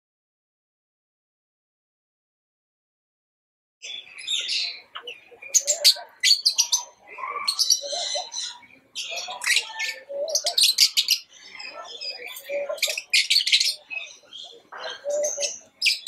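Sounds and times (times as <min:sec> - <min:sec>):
lovebirds chattering: 0:03.8 - 0:16.0.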